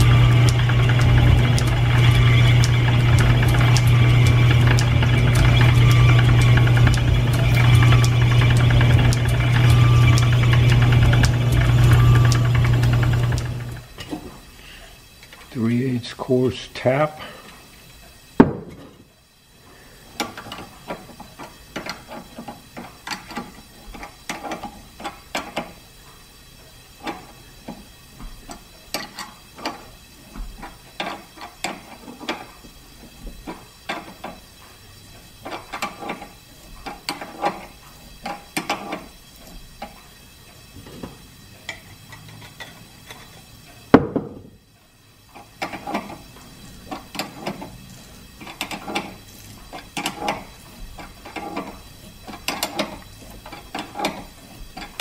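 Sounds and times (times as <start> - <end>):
tap wrench clicks and creaks: 0.0 - 14.2, 20.2 - 25.8, 27.0 - 34.4, 35.2 - 43.9, 45.3 - 55.0
sharp knock: 18.4 - 18.8.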